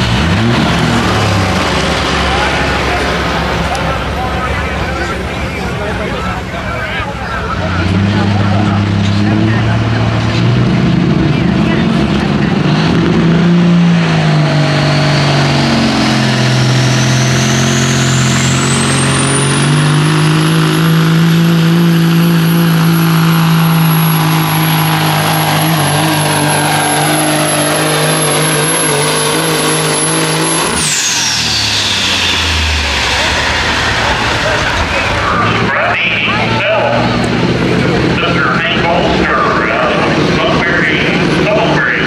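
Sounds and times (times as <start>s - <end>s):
diesel truck engine drone: 0.0s - 42.0s
turbocharger whistle: 14.6s - 21.2s, 21.9s - 37.0s.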